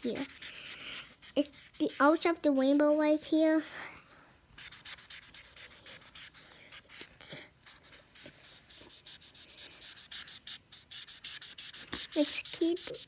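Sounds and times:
marker scribbling on paper: 0:00.0 - 0:03.8, 0:04.6 - 0:13.0.

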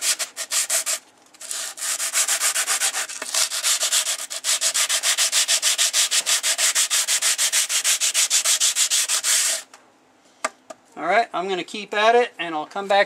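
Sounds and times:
sandpaper rubbing on saw blade: 0:00.0 - 0:09.7.

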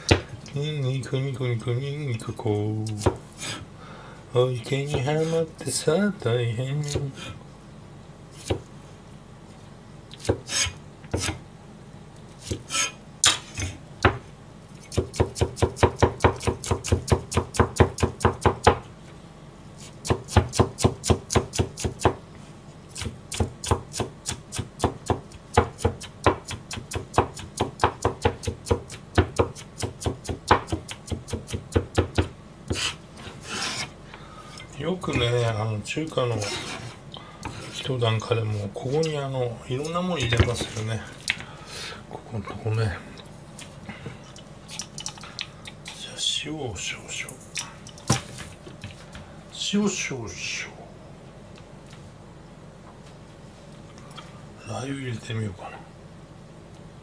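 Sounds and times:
knife chopping on plastic board: 0:24.8 - 0:32.8.

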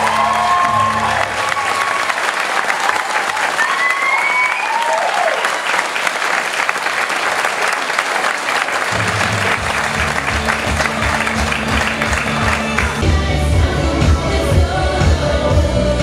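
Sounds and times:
audience applause: 0:00.0 - 0:13.0
bass-heavy backing track: 0:09.0 - 0:16.0.

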